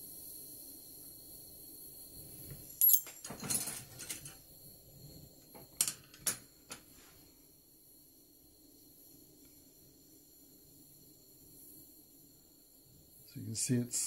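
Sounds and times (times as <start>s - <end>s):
glass rods clinking: 2.7s - 4.4s.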